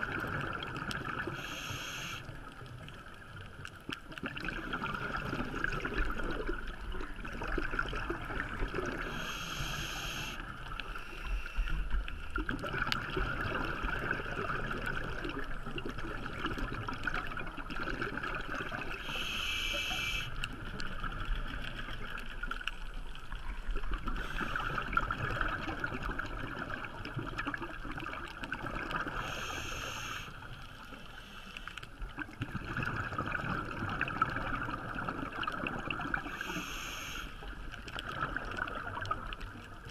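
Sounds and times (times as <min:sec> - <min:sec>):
water bubbling and gurgling: 0:00.0 - 0:39.9
diver breathing through regulator: 0:01.4 - 0:02.3, 0:09.0 - 0:11.8, 0:19.0 - 0:20.4, 0:29.1 - 0:30.4, 0:36.3 - 0:37.4
short hisses: 0:19.1 - 0:20.3.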